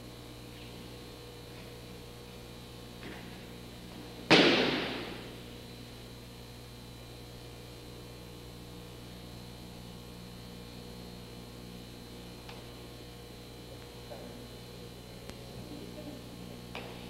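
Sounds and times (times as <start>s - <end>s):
mains hum: 0.0s - 17.0s
body slapping a mat: 4.3s - 5.3s.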